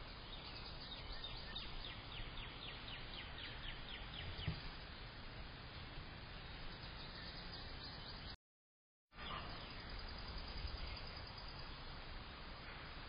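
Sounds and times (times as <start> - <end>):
outdoor background hiss: 0.0 - 8.4, 9.1 - 13.0
faint bird chirps: 9.2 - 11.9.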